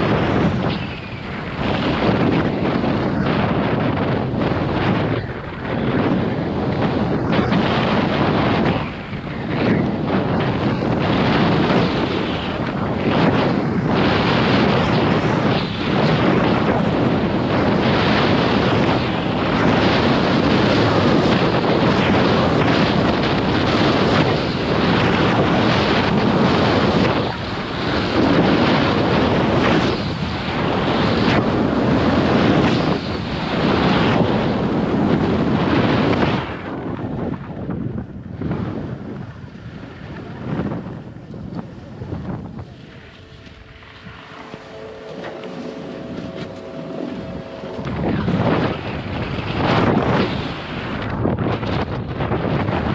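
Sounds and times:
wind rushing over microphone: 0.0s - 52.9s
skis sliding on snow: 41.9s - 50.9s.

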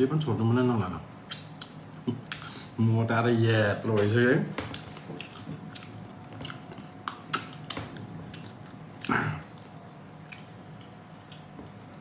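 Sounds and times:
lip-smacking mouth noises: 1.1s - 2.8s, 4.7s - 12.0s.

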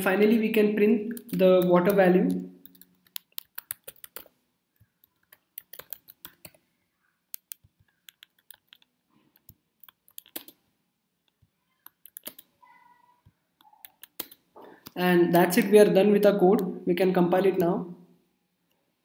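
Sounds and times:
typing on computer keyboard: 1.1s - 6.6s, 7.3s - 10.6s, 11.3s - 12.5s, 13.6s - 14.4s.

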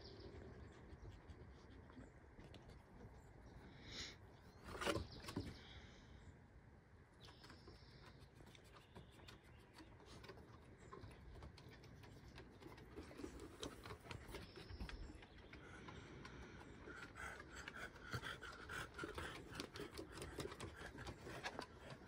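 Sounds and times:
dog claws ticking on wooden deck: 7.7s - 22.0s.

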